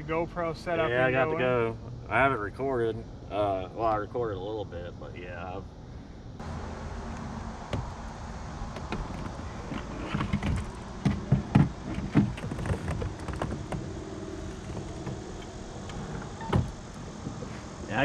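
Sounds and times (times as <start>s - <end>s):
gear knocking in a kayak: 8.7s - 17.5s.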